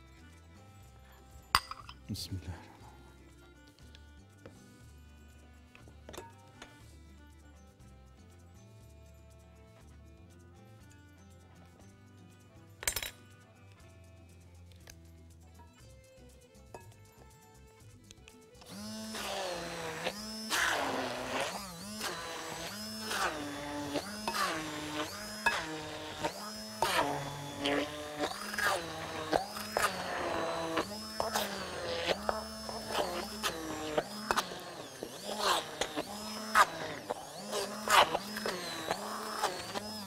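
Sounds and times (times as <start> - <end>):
stick blender pulsing: 18.6 - 40.0.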